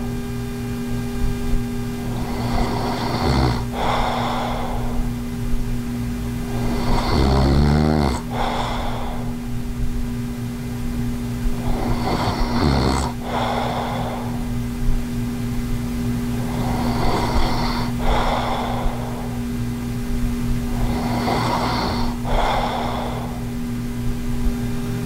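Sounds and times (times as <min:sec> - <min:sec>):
man snoring: 0:02.0 - 0:05.3, 0:06.4 - 0:09.6, 0:11.5 - 0:14.6, 0:16.3 - 0:19.5, 0:20.7 - 0:23.6
rasping breath: 0:02.0 - 0:05.6, 0:06.4 - 0:10.0, 0:11.4 - 0:14.8, 0:16.4 - 0:19.6, 0:20.7 - 0:23.7.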